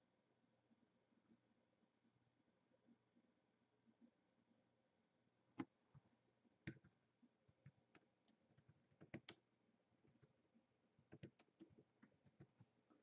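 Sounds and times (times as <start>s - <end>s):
computer keyboard keystrokes: 6.6s - 9.4s, 11.0s - 12.6s.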